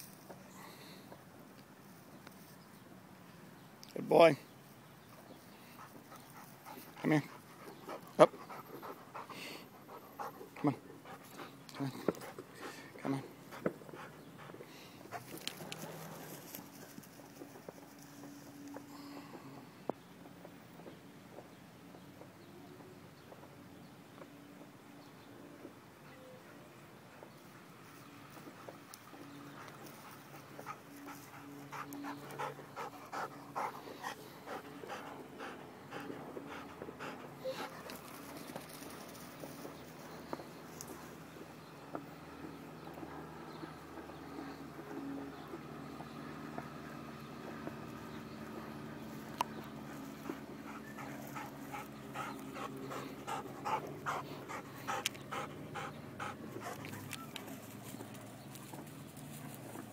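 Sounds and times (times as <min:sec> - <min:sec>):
dog panting: 0:05.6 - 0:18.9, 0:26.0 - 0:41.2, 0:48.5 - 0:58.6.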